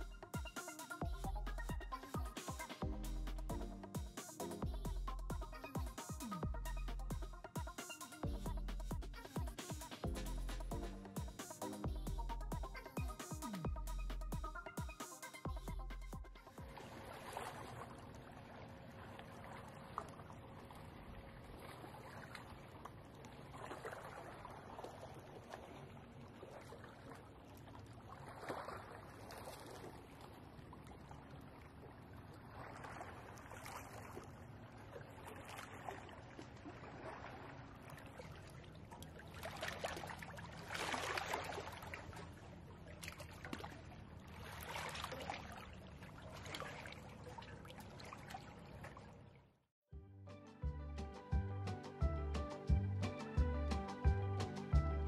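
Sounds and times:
small waves lapping at shore: 16.6s - 49.4s.

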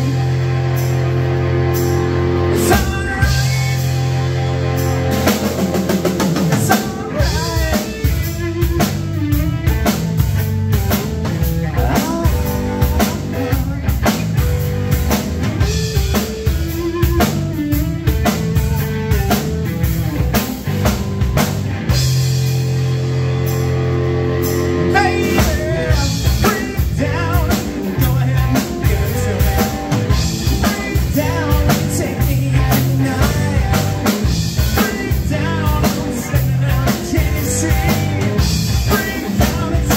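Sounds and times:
drum kit: 0.0s - 39.9s
electric bass: 0.0s - 39.9s
electric guitar: 0.0s - 39.9s
person singing: 2.5s - 4.0s, 6.5s - 8.6s, 11.7s - 14.3s, 24.6s - 39.9s.

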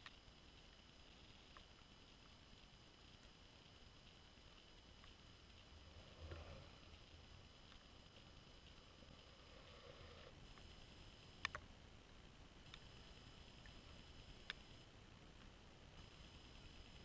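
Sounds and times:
faint steady hiss: 0.0s - 17.0s
sharp clicks: 11.4s - 11.6s, 12.7s - 12.9s.

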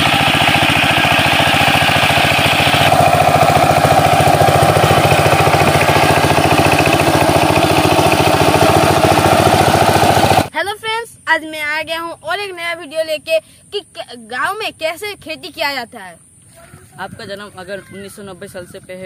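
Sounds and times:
diesel engine chugging: 0.0s - 11.0s.

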